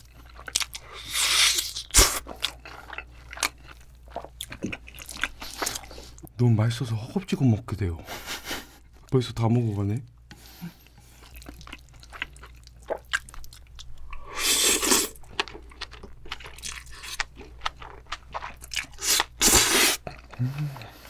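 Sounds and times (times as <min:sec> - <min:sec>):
close chewing with crunches: 0:00.0 - 0:06.3, 0:10.8 - 0:21.0.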